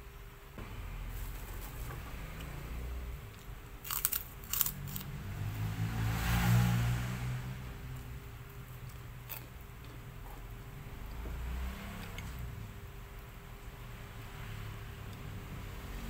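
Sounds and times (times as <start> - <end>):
crackers crunching: 3.4 - 5.1, 8.9 - 10.4
chewing: 8.9 - 10.5.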